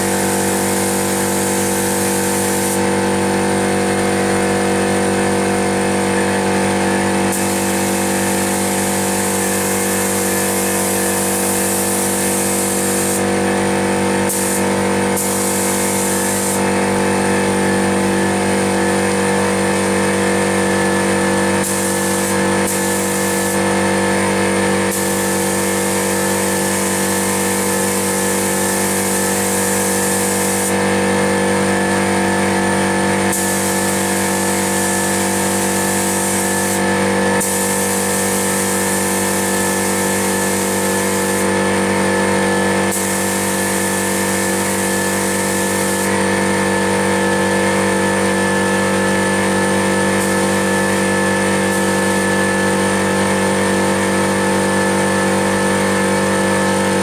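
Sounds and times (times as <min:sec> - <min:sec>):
spray gun hissing: 0:00.0 - 0:02.9, 0:07.2 - 0:13.3, 0:14.2 - 0:16.7, 0:21.6 - 0:23.6, 0:24.9 - 0:30.8, 0:33.3 - 0:36.8, 0:37.4 - 0:41.5, 0:42.9 - 0:46.2
air compressor humming: 0:00.0 - 0:57.0.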